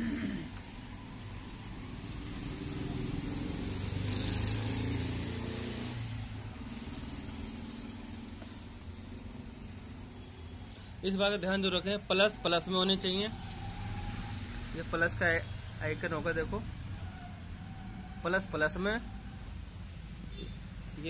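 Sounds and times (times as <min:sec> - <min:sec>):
vehicle engine driving past: 0:00.7 - 0:06.2, 0:13.3 - 0:15.0.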